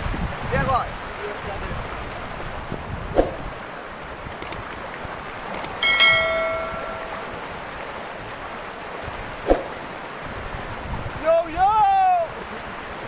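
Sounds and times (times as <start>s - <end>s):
short thump: 3.2s - 3.5s
quick clicks: 4.4s - 4.7s, 5.5s - 5.8s
bell chime: 5.8s - 7.5s.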